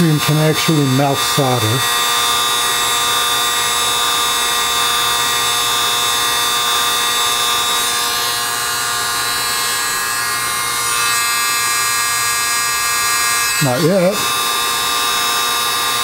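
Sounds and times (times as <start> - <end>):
heat gun fan and motor whine: 0.0 - 16.0.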